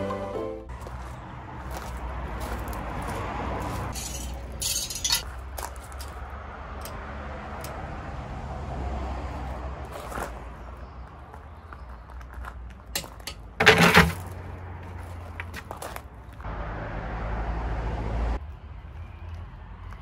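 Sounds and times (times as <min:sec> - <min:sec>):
small metal parts clinking: 0:03.9 - 0:05.4.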